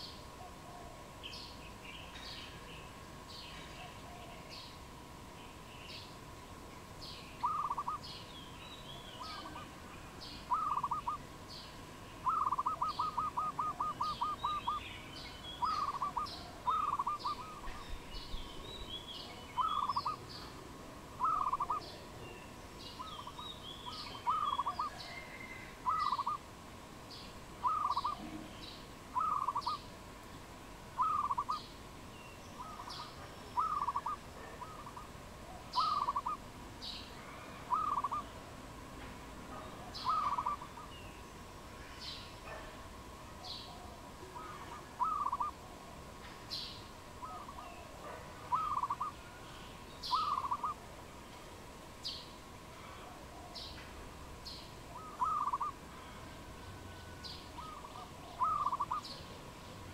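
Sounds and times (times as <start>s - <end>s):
small birds chirping: 0.0s - 38.5s, 39.4s - 59.9s
dove cooing: 0.4s - 1.1s, 7.4s - 8.1s, 10.4s - 11.2s, 12.2s - 14.8s, 15.6s - 17.8s, 19.5s - 20.2s, 21.2s - 22.0s, 23.0s - 26.4s, 27.6s - 28.5s, 29.1s - 29.8s, 31.0s - 31.7s, 32.6s - 36.4s, 37.2s - 38.3s, 39.6s - 40.9s, 43.4s - 46.0s, 47.2s - 49.3s, 50.1s - 50.8s, 54.9s - 56.2s, 57.6s - 59.2s.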